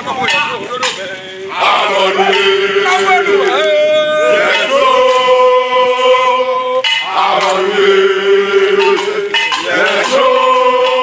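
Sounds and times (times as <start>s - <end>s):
men chanting long notes: 0.0s - 11.0s.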